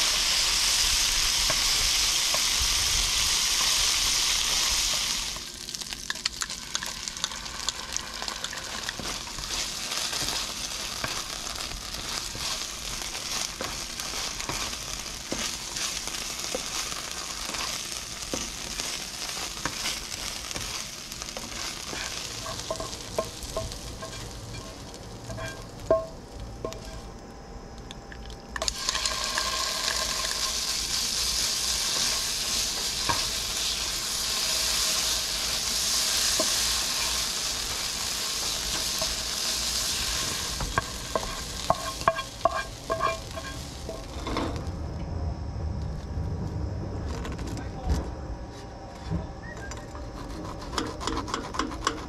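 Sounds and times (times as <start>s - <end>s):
meat sizzling in a frying pan: 0.0s - 27.0s, 28.6s - 44.2s
spatula scraping a pan: 8.6s - 26.0s, 28.9s - 44.6s, 50.2s - 52.0s.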